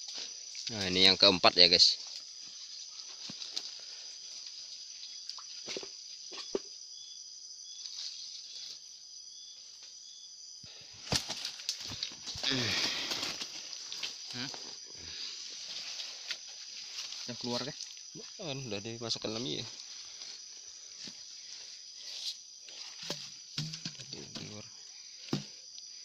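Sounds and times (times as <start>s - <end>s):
high-pitched insect chorus: 0.0s - 26.0s.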